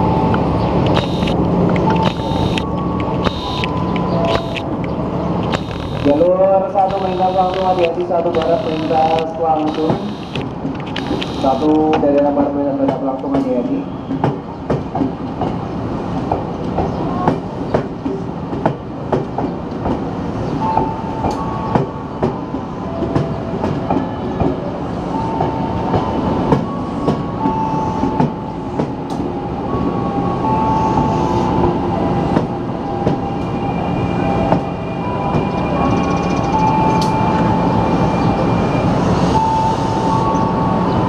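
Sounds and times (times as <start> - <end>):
train rumble: 0.0 - 41.0
high whining tones: 0.8 - 10.4, 11.0 - 11.8.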